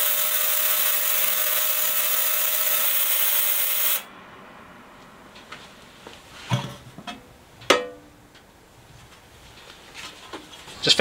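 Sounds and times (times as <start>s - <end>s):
ultrasonic cleaner hissing: 0.0s - 4.1s.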